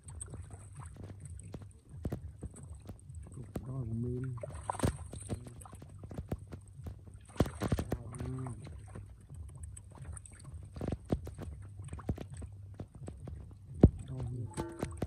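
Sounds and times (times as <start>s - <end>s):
hands splashing in muddy water: 4.4s - 9.1s.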